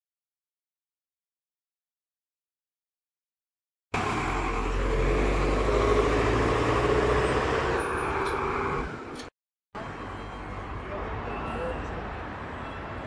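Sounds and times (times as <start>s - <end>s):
heavy vehicle engine rumbling: 4.0s - 12.0s.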